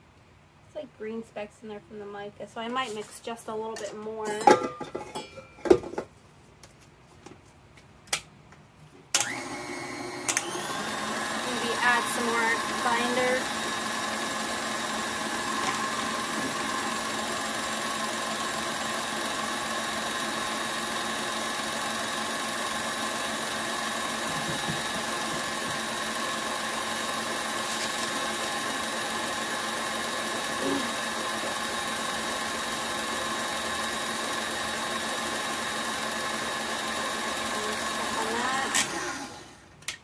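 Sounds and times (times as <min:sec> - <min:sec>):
beater turning through powder: 0:09.2 - 0:39.5
stand mixer humming: 0:09.2 - 0:39.6.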